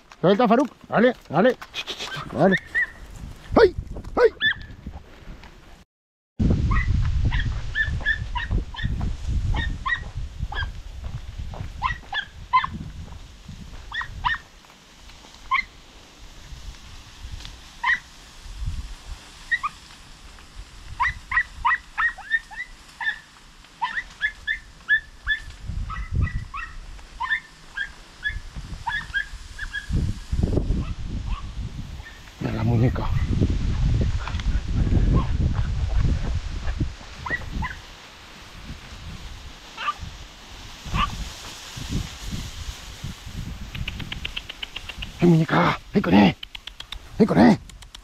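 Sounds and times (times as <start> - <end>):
puppies yipping: 1.8 - 3.0, 15.5 - 15.7, 21.0 - 23.2, 23.8 - 29.9
wind rumble on microphone: 2.2 - 5.8, 6.4 - 22.8, 24.3 - 48.0.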